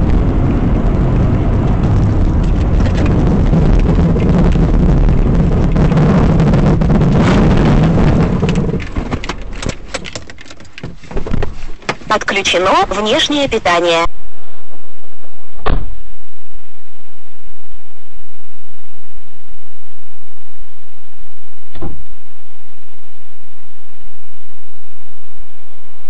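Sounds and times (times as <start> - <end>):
car engine and road noise: 0.0 - 14.1.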